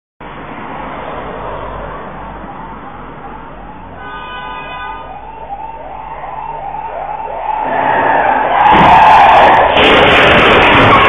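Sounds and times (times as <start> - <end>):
moving vehicle noise: 0.2 - 11.0
siren sweeping up and down: 4.8 - 9.7.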